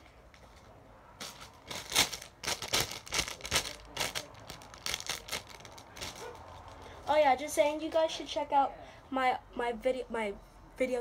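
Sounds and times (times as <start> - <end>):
packaging rustling and crinkling: 0.4 - 6.9.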